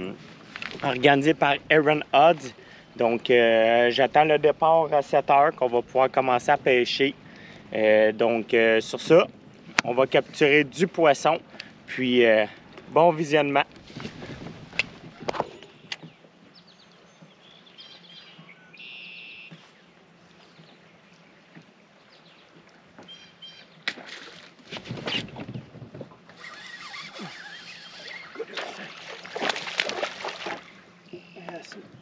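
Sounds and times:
faint bird chirps: 15.5 - 21.3
water splashing: 23.8 - 31.8.

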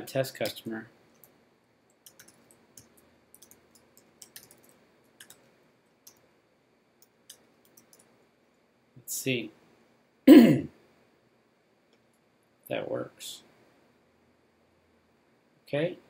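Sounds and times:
keyboard typing: 0.4 - 6.2, 7.0 - 8.1.

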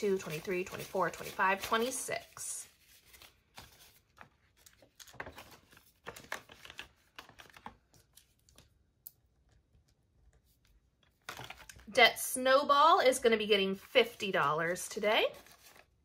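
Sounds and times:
paper rustling: 0.0 - 8.7, 10.3 - 11.8, 13.8 - 16.0.

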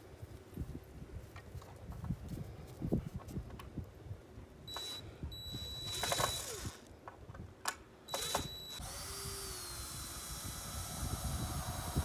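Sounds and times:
cordless drill whining: 4.7 - 6.9, 8.1 - 12.0.

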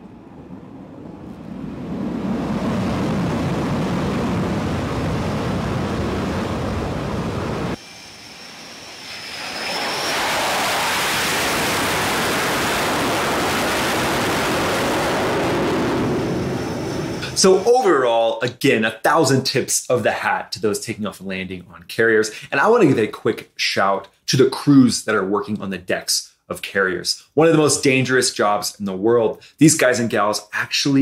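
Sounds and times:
fighter jet engine: 0.0 - 18.1
loud bright jet roar: 0.0 - 18.2
thin high jet whine: 0.0 - 18.2.

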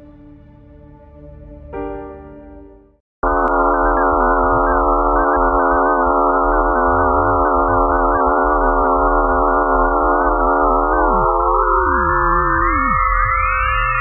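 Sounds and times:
steady electronic tones wavering: 3.2 - 14.0.

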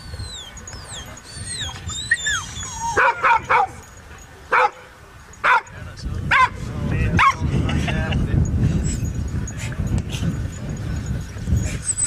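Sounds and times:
dog barking: 2.9 - 3.8, 4.5 - 5.7, 6.3 - 6.6, 7.2 - 7.4.

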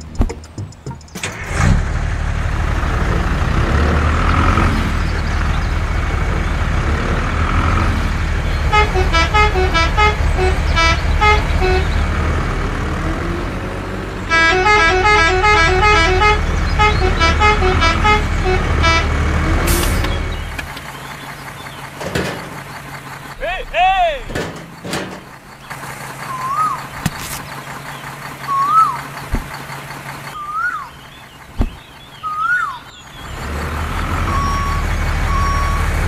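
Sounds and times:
vehicle engine running: 0.0 - 36.0
musical horn playing tune: 8.7 - 11.9, 14.3 - 19.8.

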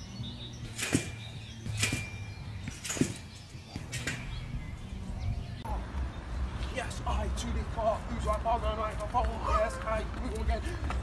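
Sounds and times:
trampoline bouncing thuds: 0.0 - 5.6.

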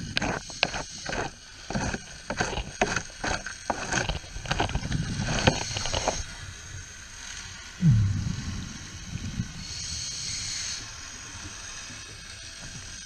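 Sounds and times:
low underwater rumble: 7.8 - 10.0.

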